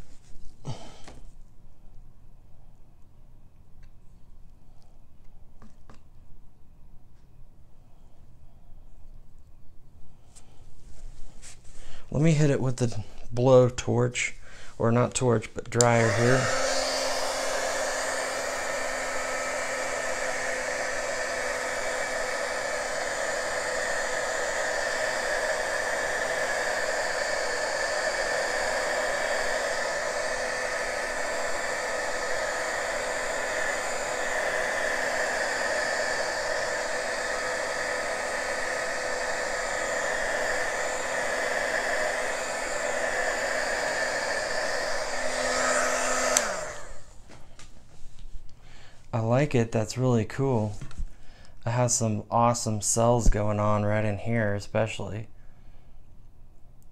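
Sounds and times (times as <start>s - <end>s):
handheld dryer blowing: 14.5s - 47.6s.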